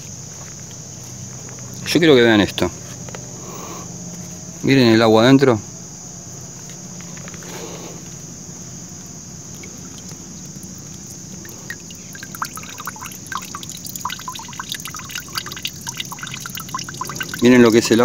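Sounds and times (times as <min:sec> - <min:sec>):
crickets chirring: 0:00.0 - 0:18.0
water dripping and trickling: 0:09.4 - 0:18.0.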